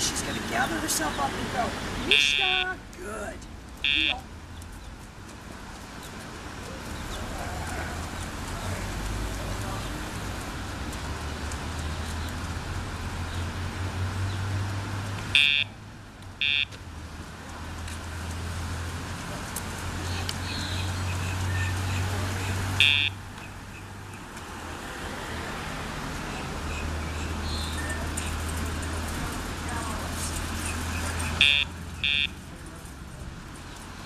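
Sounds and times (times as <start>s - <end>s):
low hum of traffic: 0.0s - 34.0s
short high beeps: 2.1s - 2.8s, 3.9s - 4.2s, 22.8s - 23.2s, 31.4s - 32.4s.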